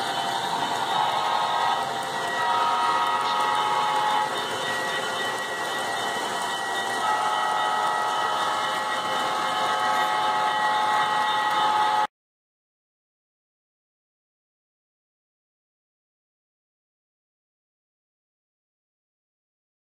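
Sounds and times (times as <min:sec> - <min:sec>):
model train rolling: 0:00.0 - 0:12.1
multi-tone train whistle: 0:00.0 - 0:12.1.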